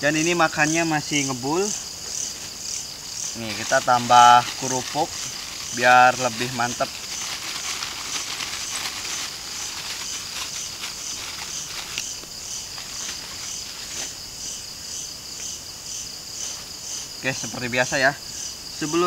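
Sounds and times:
crickets trilling: 0:00.0 - 0:19.0
plastic bag crinkling: 0:03.3 - 0:13.9.

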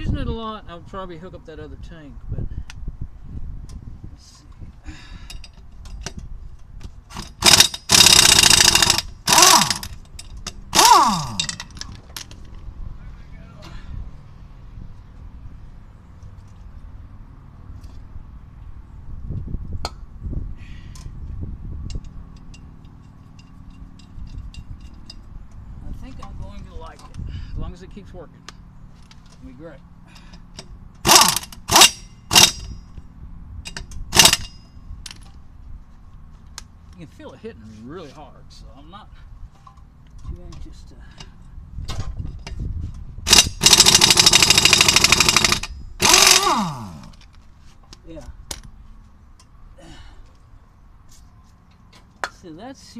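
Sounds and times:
air impact wrench hammering: 0:07.1 - 0:11.9, 0:30.3 - 0:33.0, 0:33.7 - 0:35.2, 0:43.3 - 0:47.2.

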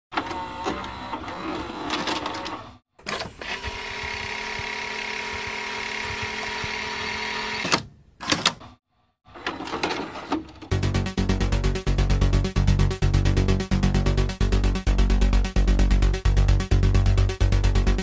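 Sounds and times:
tape rewinding motor whir: 0:00.1 - 0:08.6, 0:09.3 - 0:10.8
tape mechanism clatter and clicks: 0:09.4 - 0:10.8
tape transport clunks: 0:09.4 - 0:11.0.

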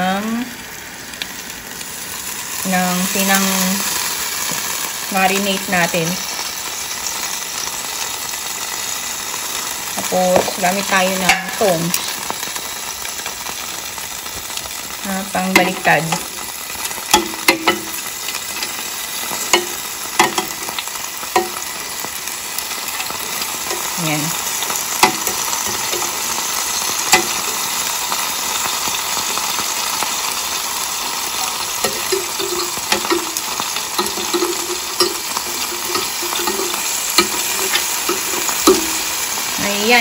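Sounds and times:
meat sizzling on a grill: 0:00.0 - 0:40.0
metal tongs clicking on grate: 0:34.0 - 0:39.0.

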